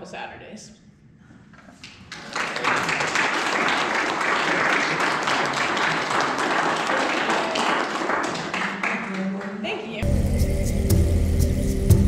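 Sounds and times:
audience applauding: 1.9 - 9.6.

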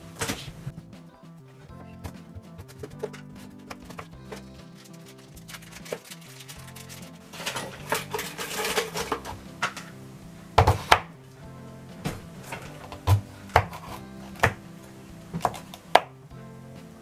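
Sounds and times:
scraping rustle: 2.5 - 9.9
knife chopping on cutting board: 10.6 - 11.1, 12.1 - 14.6, 15.4 - 16.1.

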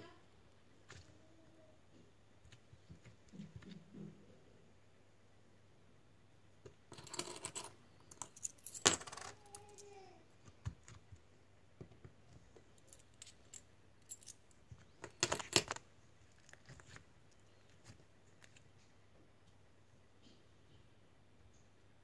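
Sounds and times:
coins clinking in hand: 6.9 - 9.9, 15.0 - 15.8.

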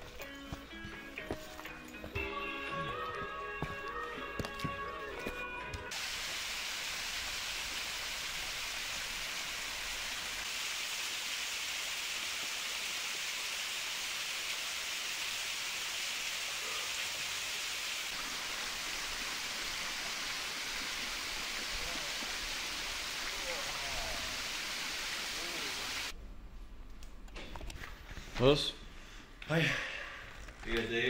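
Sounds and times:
waterfall splashing: 5.9 - 26.1.

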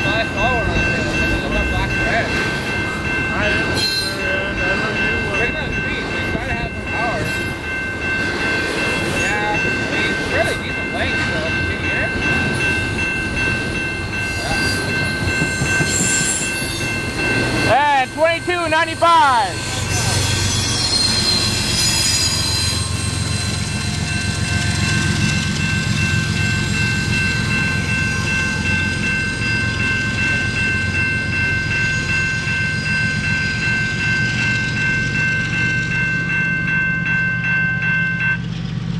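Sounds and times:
level crossing warning bell: 0.0 - 38.8
freight train rumbling past: 0.0 - 38.9
train wheels squealing: 3.6 - 5.4, 14.1 - 17.8, 19.5 - 30.0.

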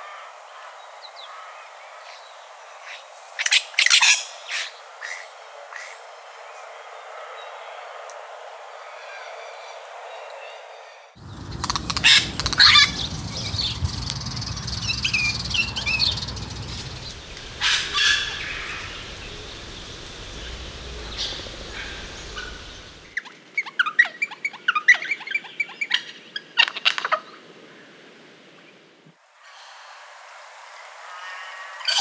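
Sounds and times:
birds calling harshly: 11.2 - 27.1.

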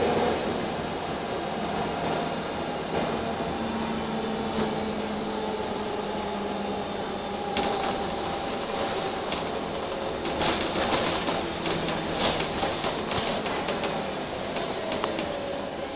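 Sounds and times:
bus engine and tyres rumbling: 0.0 - 15.9
light rattling clicks: 7.6 - 15.4.

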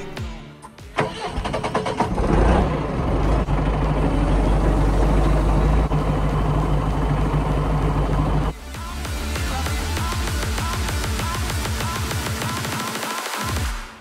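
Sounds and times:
diesel engine idling: 1.0 - 10.2.

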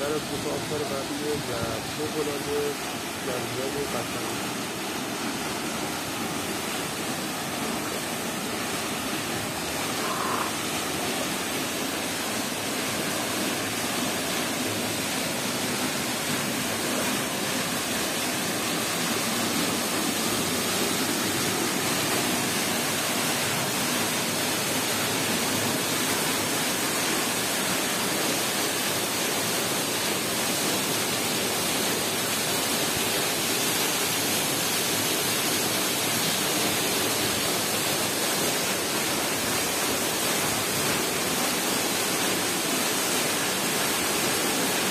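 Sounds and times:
waterfall rushing into a pool: 0.0 - 44.9.

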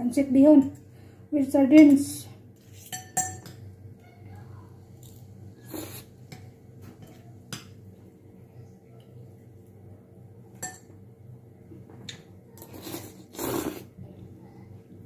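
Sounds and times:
steady low hum: 0.0 - 15.0
cutlery scraping a ceramic bowl: 2.6 - 3.6.

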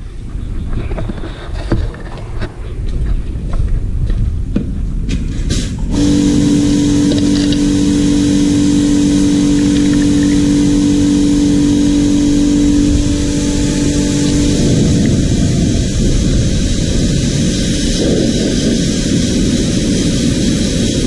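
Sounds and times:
low rumble: 2.3 - 21.0
machine motor humming: 5.9 - 21.0.

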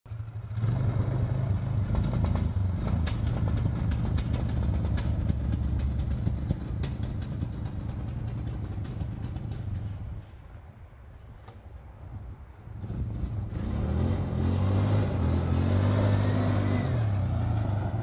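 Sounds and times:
atv engine running: 0.1 - 10.1
gravel clicking under tyres: 0.1 - 11.8, 15.8 - 18.0.

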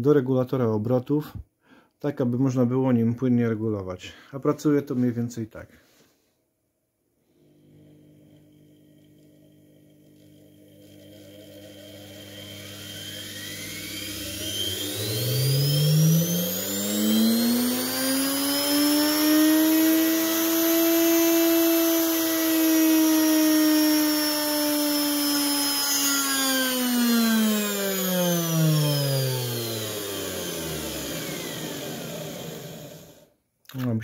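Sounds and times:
tool braking motor pulley: 7.4 - 33.2
electric motor whine: 7.4 - 33.3.

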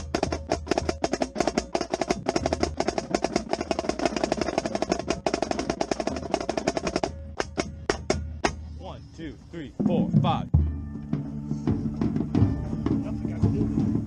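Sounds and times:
marching snare drum roll: 0.0 - 8.6
lower drums playing: 0.0 - 14.0.

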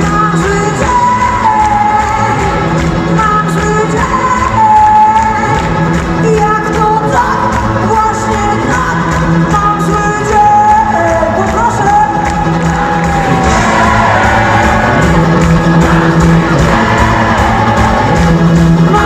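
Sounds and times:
drums: 0.0 - 19.0
electric guitar: 0.0 - 19.0.

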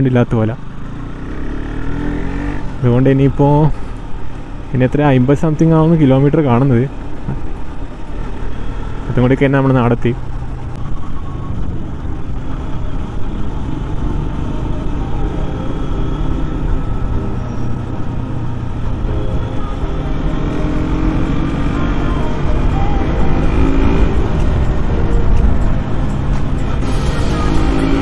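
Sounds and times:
vehicle engine and road rumble: 0.0 - 28.0
pitched tones: 14.0 - 28.0.

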